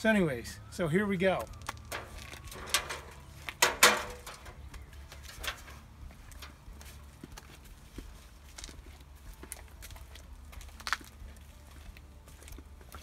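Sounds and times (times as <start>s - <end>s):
metallic clanks: 1.8s - 4.6s, 5.3s - 6.6s
metal stepladder clattering: 1.9s - 4.6s, 5.3s - 6.6s
footsteps on concrete: 4.2s - 13.0s.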